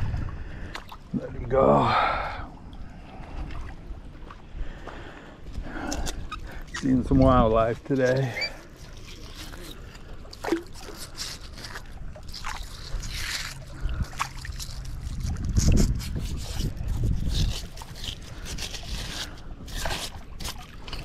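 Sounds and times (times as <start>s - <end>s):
fingers scraping muck off magnet: 8.0s - 21.0s.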